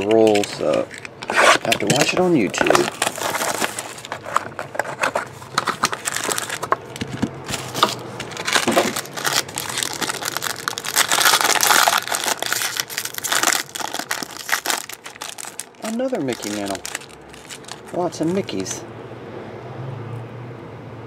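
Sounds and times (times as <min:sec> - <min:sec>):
foil wrapper crinkling: 0:00.0 - 0:18.8.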